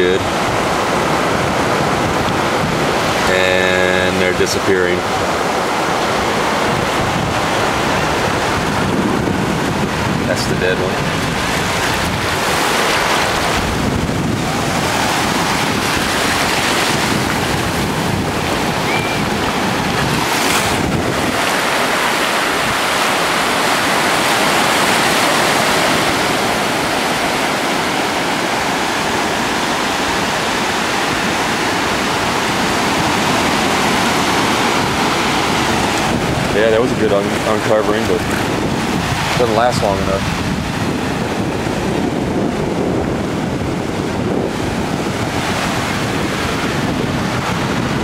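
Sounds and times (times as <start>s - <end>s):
ocean surf breaking: 0.0s - 48.0s
wind buffeting microphone: 0.0s - 48.0s.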